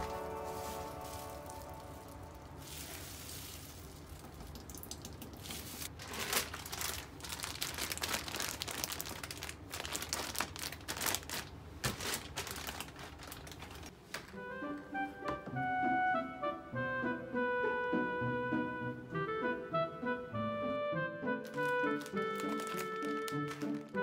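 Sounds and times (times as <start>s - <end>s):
plastic bag crinkling: 0.0s - 14.0s, 21.4s - 24.0s.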